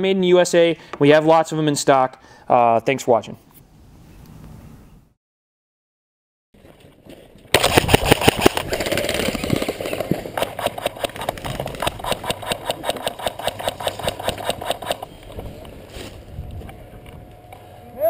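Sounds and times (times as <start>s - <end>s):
airsoft gun rapid fire: 7.5s - 15.0s.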